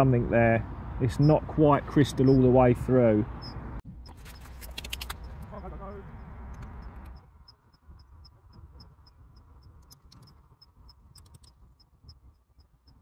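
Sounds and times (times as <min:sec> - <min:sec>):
scattered clicks: 0:04.1 - 0:13.0.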